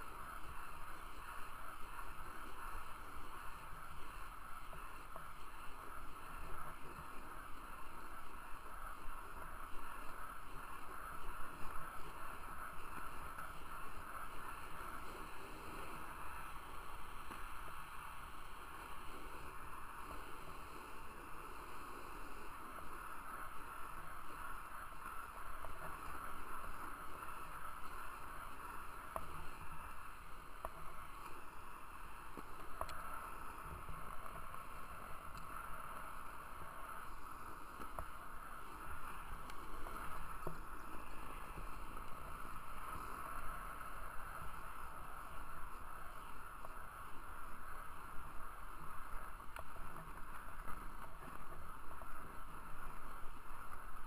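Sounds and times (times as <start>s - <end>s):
skate wheels rolling on pavement: 0.1s - 54.0s
faint clicks: 32.2s - 54.0s.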